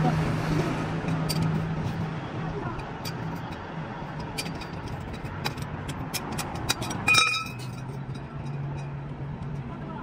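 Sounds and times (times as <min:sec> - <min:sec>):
metal tools knocking and clinking: 0:01.1 - 0:02.1, 0:02.8 - 0:09.0
loud ringing metal clang: 0:07.0 - 0:07.8.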